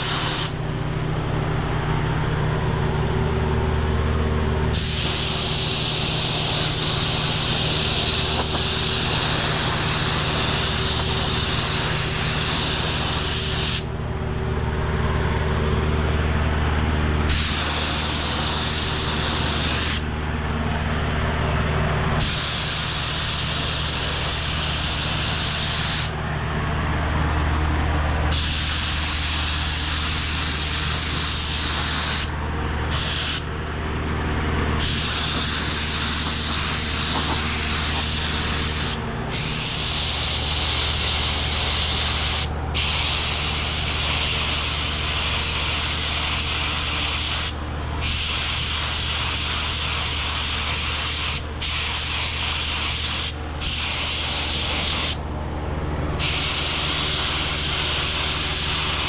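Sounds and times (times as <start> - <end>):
spray gun hissing: 0.0 - 0.6, 4.7 - 13.9, 17.3 - 20.1, 22.2 - 26.2, 28.3 - 32.3, 32.9 - 33.5, 34.8 - 55.2, 56.2 - 59.0
low machine hum: 0.0 - 59.0.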